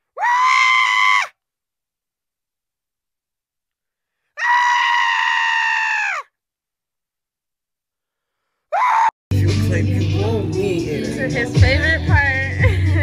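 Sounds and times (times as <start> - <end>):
high-pitched scream: 0.2 - 1.4, 4.4 - 6.3, 8.7 - 9.2.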